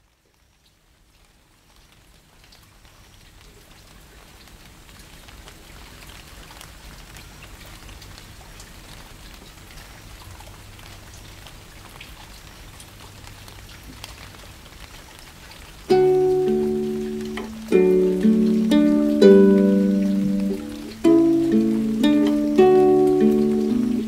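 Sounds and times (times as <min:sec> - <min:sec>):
water drops pattering: 0:15.9 - 0:24.0.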